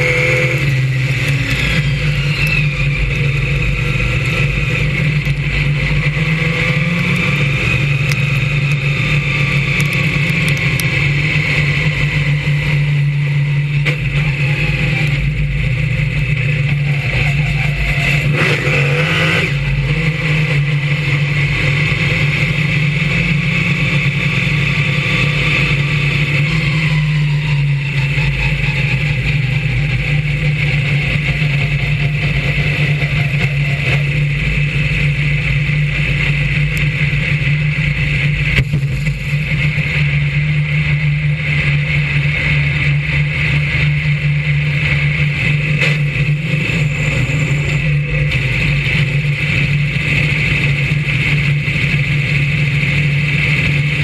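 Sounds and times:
race car engine running: 0.0 - 54.0.

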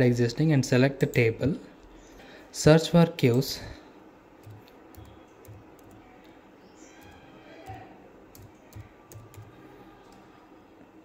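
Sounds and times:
computer keyboard keystrokes: 4.4 - 6.1, 7.0 - 10.2.

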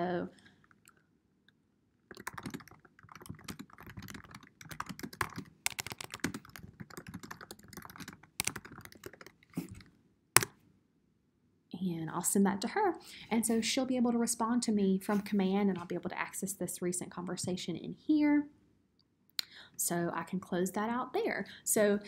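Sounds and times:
keyboard key clicks: 2.1 - 9.8.

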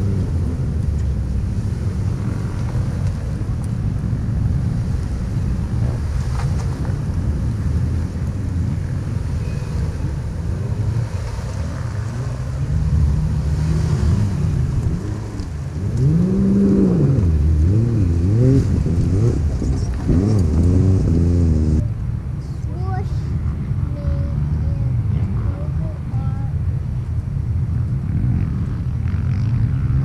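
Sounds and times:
engine revving: 9.3 - 21.9.

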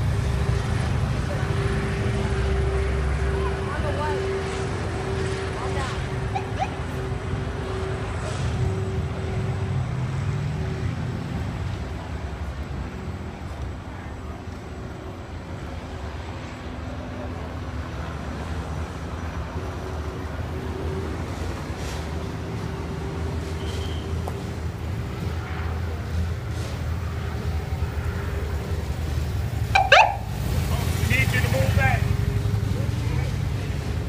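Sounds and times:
low engine drone: 0.0 - 34.0
constant tone: 29.5 - 32.4.

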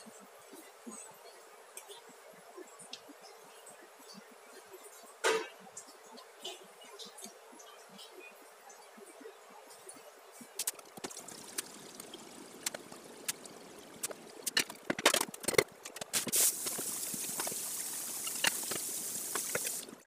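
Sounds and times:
water boiling and bubbling: 10.1 - 20.0.

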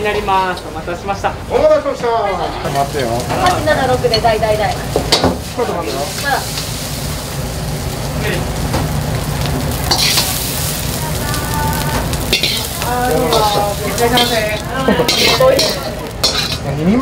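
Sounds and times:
metal ladle scraping a wok: 9.9 - 10.6, 12.2 - 16.7.

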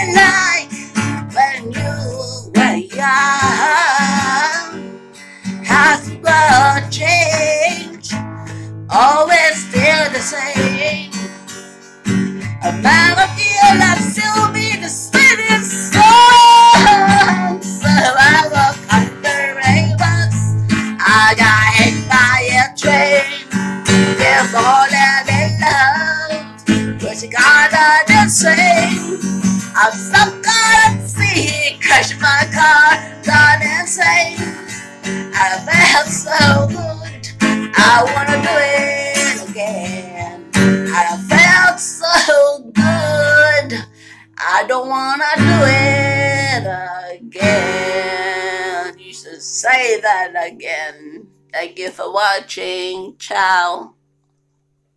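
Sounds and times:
woman singing: 0.0 - 11.3, 12.6 - 54.0
strummed acoustic guitar: 0.0 - 54.4.

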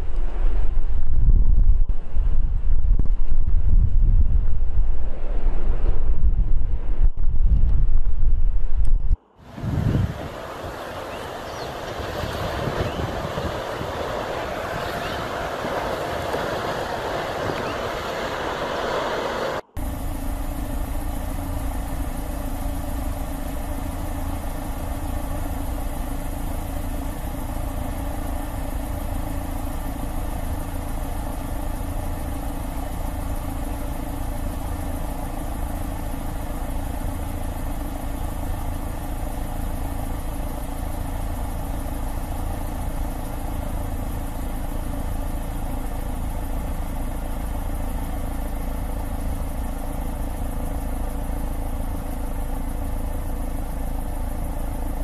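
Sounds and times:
helicopter engine and rotor drone: 9.2 - 55.0.

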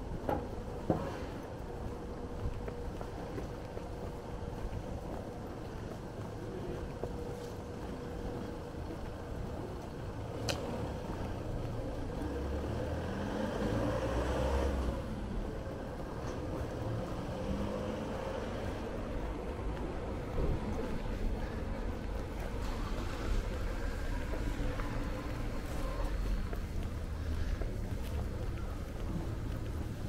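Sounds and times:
vehicle passing: 10.6 - 30.0.

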